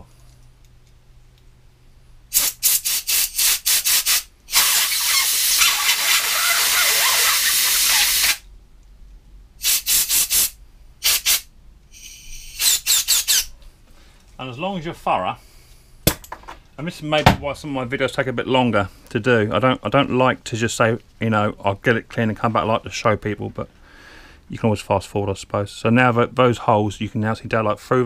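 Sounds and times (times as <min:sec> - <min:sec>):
air blow gun puffs and hiss: 0:02.3 - 0:08.4, 0:09.6 - 0:13.4.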